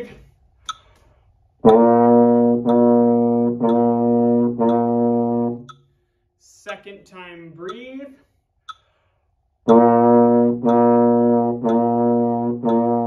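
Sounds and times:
metronome ticking: 0.0 - 13.0
euphonium playing low notes: 1.6 - 5.7.

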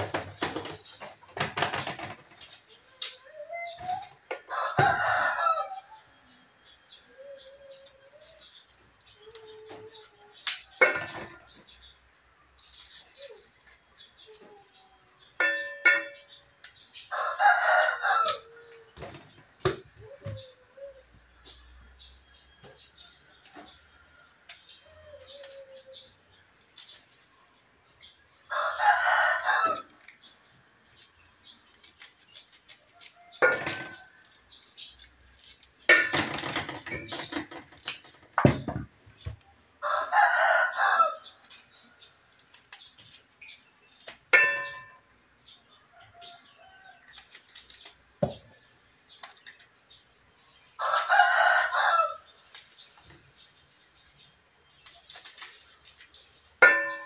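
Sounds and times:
rooster crowing: 4.5 - 6.0, 17.1 - 18.9, 28.5 - 29.9, 39.8 - 41.4, 50.8 - 52.2.

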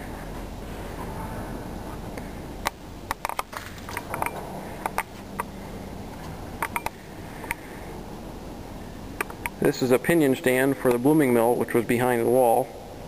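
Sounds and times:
steady low hum: 0.0 - 13.0
sharp clicks and light knocks: 2.2 - 5.5, 6.1 - 7.6, 9.2 - 9.6.

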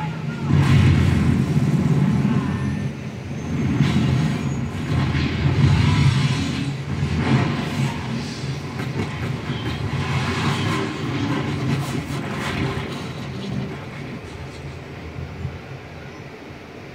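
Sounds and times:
helicopter crash rumbling: 0.4 - 15.3
debris impacts: 3.6 - 14.4.

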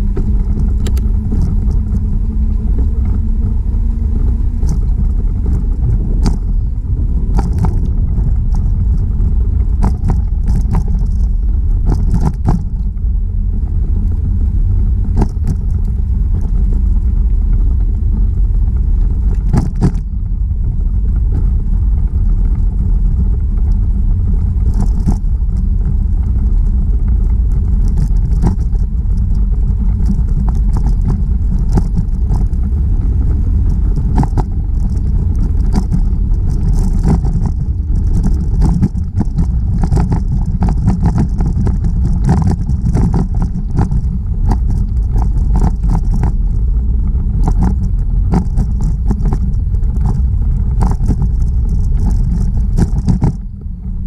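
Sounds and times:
bicycle rattling clicks: 0.0 - 3.2, 4.2 - 13.0, 15.1 - 20.4, 21.1 - 53.7
wind buffeting microphone: 0.0 - 54.0.

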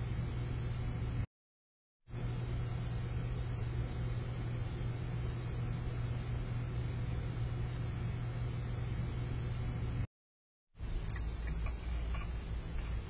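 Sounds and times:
steady low hum: 0.0 - 1.3, 2.1 - 10.1, 10.8 - 13.0
constant background noise: 10.8 - 13.0.

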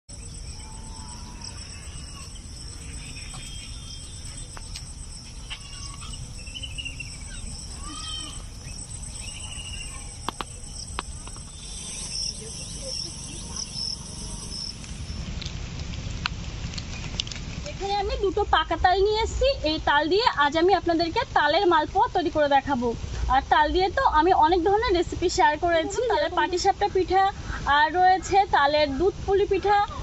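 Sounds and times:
short chirping calls: 0.1 - 15.2
insects chirring: 0.1 - 15.6, 23.4 - 29.8.

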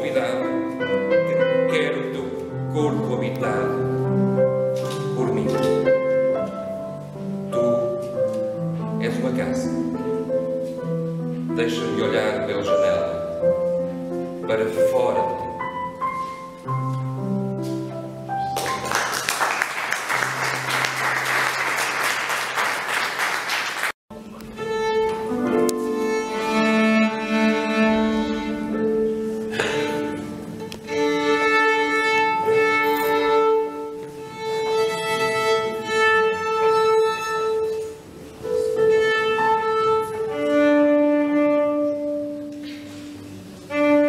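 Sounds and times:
instrumental background music: 0.0 - 21.6, 24.1 - 44.0
bowed violin long notes: 24.2 - 42.6, 43.6 - 44.0.

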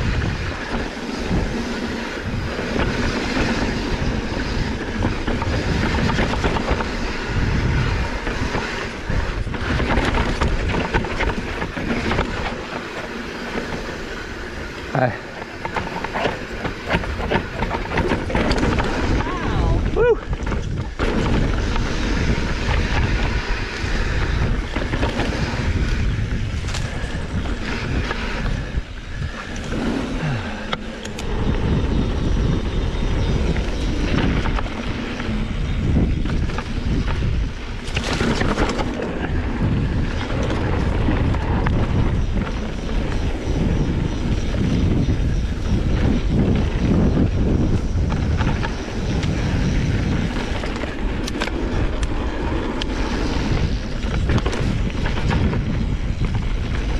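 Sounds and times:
bike clicks and knocks: 0.0 - 56.9
wind buffeting microphone: 0.0 - 56.9.

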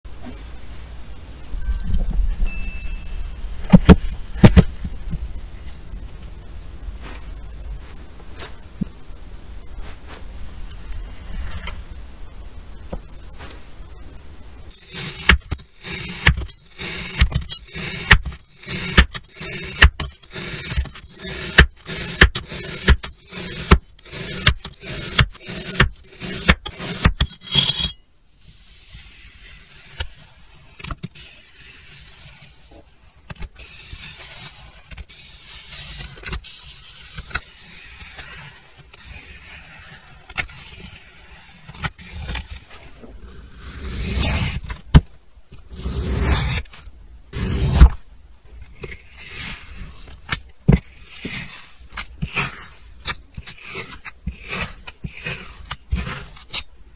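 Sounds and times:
crunchy sand cutting strokes: 14.7 - 27.8, 28.5 - 44.8, 45.7 - 46.7, 50.8 - 56.7.

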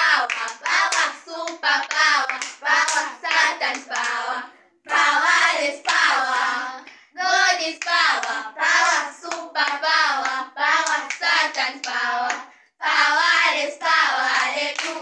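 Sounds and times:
hand claps: 0.0 - 4.2, 7.7 - 12.6, 14.5 - 15.0
girls singing together: 0.0 - 15.0.

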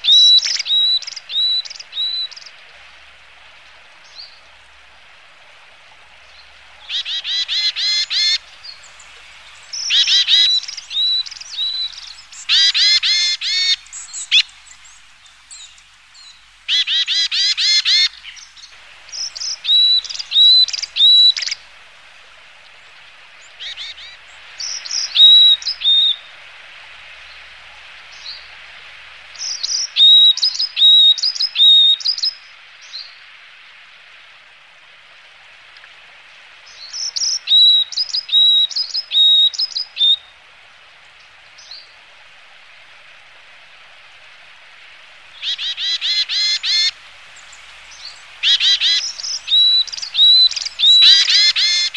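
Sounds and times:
bird chirping: 6.3 - 21.6, 45.3 - 51.9.

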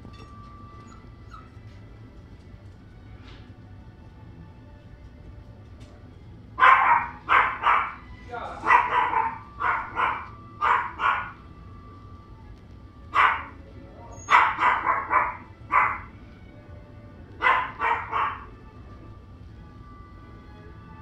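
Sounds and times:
puppies yapping: 0.2 - 1.8, 6.6 - 11.5, 13.1 - 16.2, 17.4 - 18.6.

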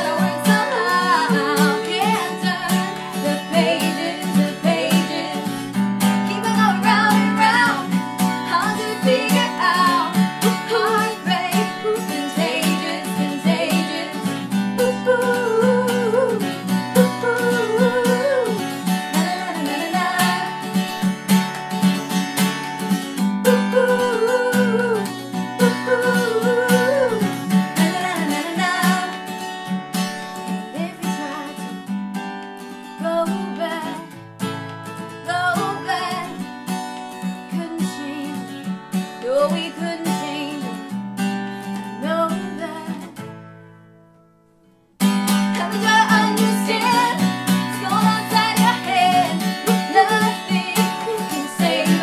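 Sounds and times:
woman singing harmony: 0.0 - 20.8, 23.4 - 29.3, 30.7 - 31.8, 33.0 - 34.1, 35.3 - 36.4, 37.5 - 38.6, 39.2 - 41.0, 42.0 - 43.2, 45.5 - 52.0
woman singing lead: 0.0 - 21.1, 23.4 - 29.5, 30.4 - 31.9, 32.8 - 34.2, 35.1 - 36.5, 37.2 - 41.0, 41.8 - 43.3, 45.3 - 52.0
acoustic guitar strumming: 0.0 - 52.0.

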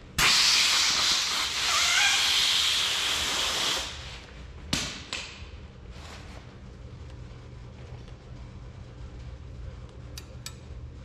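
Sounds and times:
compressed air hissing from blowgun: 0.2 - 4.2.

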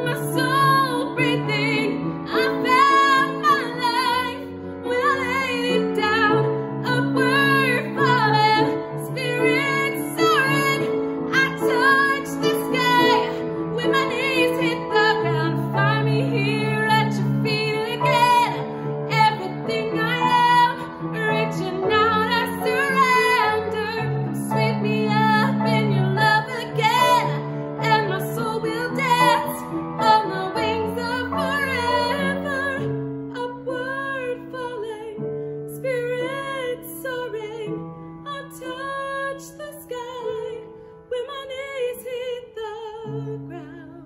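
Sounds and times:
piano chords: 0.0 - 44.0
woman singing: 0.0 - 44.0.

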